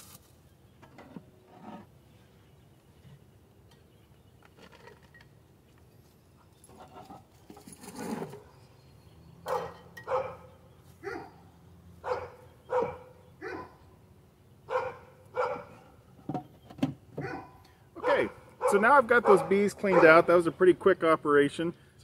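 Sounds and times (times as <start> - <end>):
dog barking: 9.5 - 11.4, 12.0 - 13.8, 14.7 - 15.9, 17.2 - 20.2.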